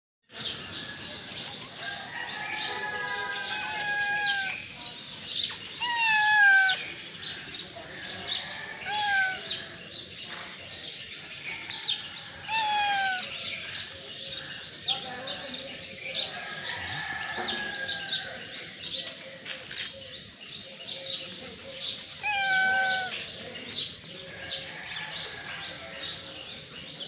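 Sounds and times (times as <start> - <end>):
small birds chirping: 0.3 - 27.0
cats meowing: 3.2 - 4.7, 5.7 - 7.0, 8.6 - 9.7, 11.4 - 14.0, 22.0 - 23.4.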